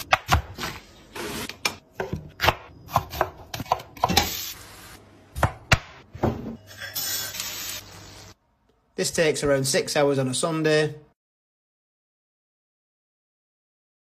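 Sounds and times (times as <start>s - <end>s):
knife chopping on wooden board: 2.0s - 4.3s.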